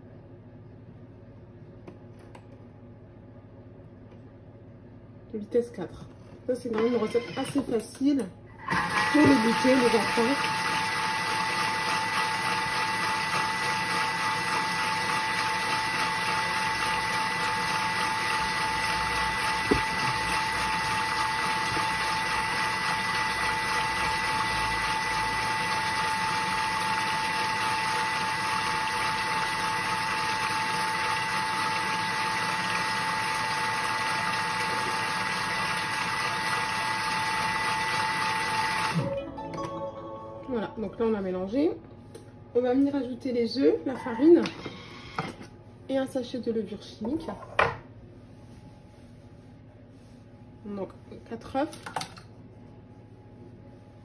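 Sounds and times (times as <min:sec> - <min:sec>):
kitchen mixer motor whining: 0:08.6 - 0:39.1.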